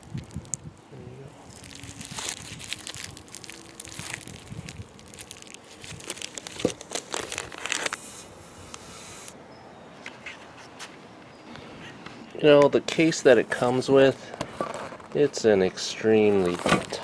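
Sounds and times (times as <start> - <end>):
plastic bag crinkling: 0.0 - 0.6, 1.4 - 8.0, 16.2 - 17.0.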